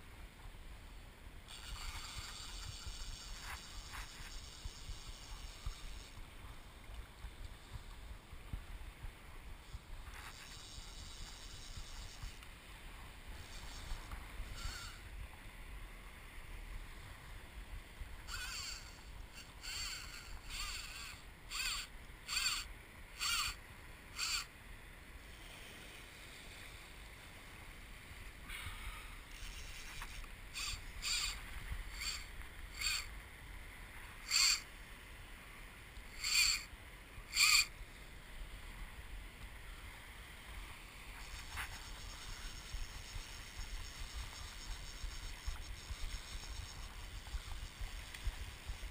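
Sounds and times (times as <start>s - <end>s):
wind and water hiss: 0.0s - 48.9s
fly reel drag buzzing: 1.5s - 6.6s, 9.6s - 12.5s, 13.3s - 15.2s, 18.1s - 24.5s, 28.5s - 33.2s, 34.1s - 34.7s, 36.0s - 37.8s, 40.8s - 48.9s.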